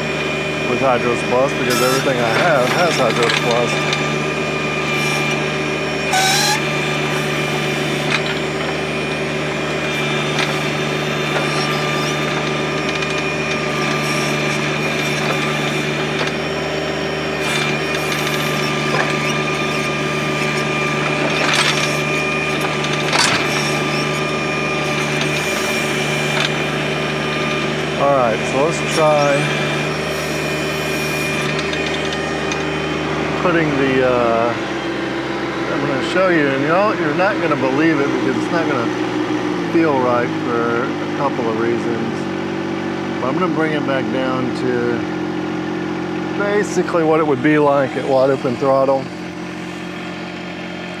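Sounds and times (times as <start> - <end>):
diesel tractor engine running: 0.0 - 51.0
high steady whine: 0.0 - 51.0.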